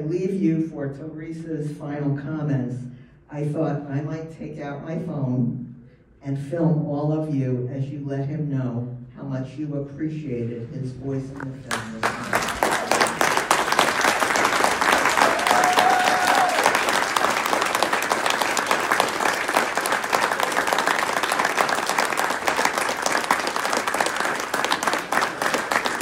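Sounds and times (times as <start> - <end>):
audience applauding: 11.7 - 26.0.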